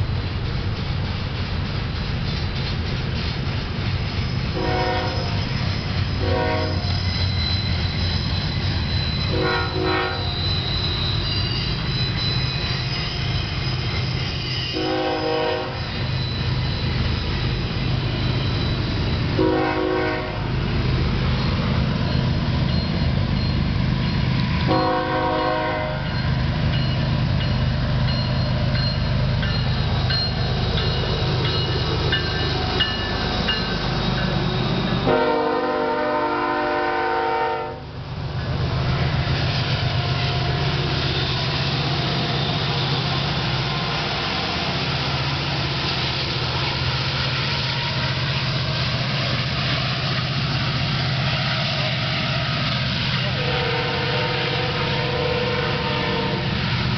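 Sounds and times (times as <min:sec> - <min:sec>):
diesel locomotive engine drone: 0:00.0 - 0:56.9
train air horn blasts: 0:04.6 - 0:05.4, 0:06.2 - 0:06.9, 0:09.3 - 0:10.3, 0:14.7 - 0:15.9, 0:19.4 - 0:20.5, 0:24.7 - 0:26.2, 0:35.0 - 0:37.8, 0:53.1 - 0:56.6.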